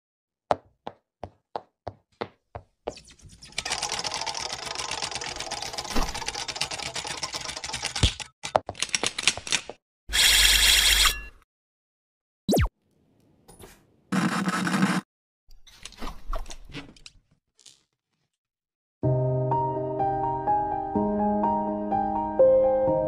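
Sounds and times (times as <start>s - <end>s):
typewriter-like clattering: 3.6s - 9.7s
cartoon clicks: 12.5s - 12.7s.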